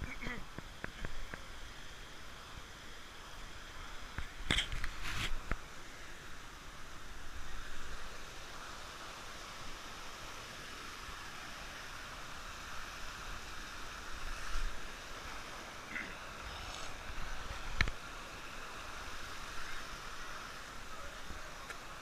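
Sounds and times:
stream water rushing over rocks: 0.0s - 22.0s.

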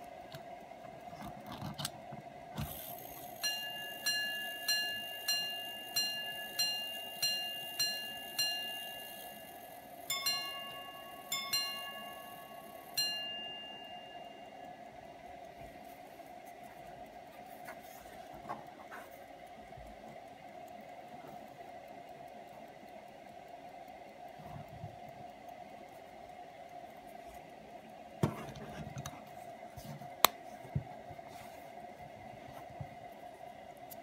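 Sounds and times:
pocket watch repeat slide clicks: 0.0s - 13.2s, 25.0s - 29.3s, 33.0s - 34.0s
pocket watch chime strikes: 3.2s - 14.6s.

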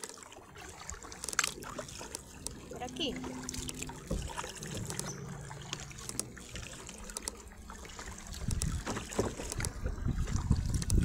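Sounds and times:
water lapping against kayak hull: 0.0s - 11.0s
wind rumble on microphone: 8.1s - 11.0s.

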